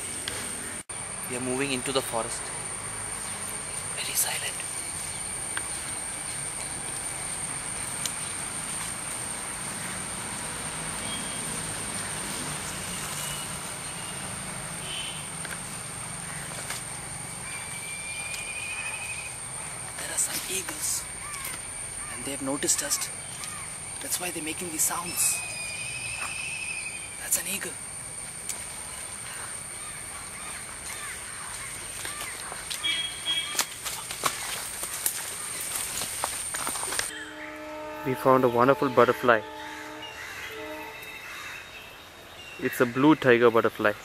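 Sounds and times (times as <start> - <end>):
high-pitched whine: 0.0 - 29.7, 36.6 - 43.1
high-pitched insect drone: 0.9 - 31.2, 35.2 - 43.5
bird calls: 17.4 - 27.4, 28.8 - 35.8, 39.4 - 44.0
faint bird-like whistles: 25.1 - 27.2.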